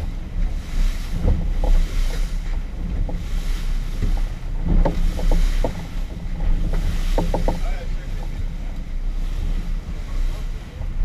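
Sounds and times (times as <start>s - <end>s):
motorboat engine rumble: 0.0s - 11.0s
water rushing along hull: 0.0s - 11.0s
wind buffeting microphone: 0.0s - 11.0s
short knocks: 4.0s - 7.8s.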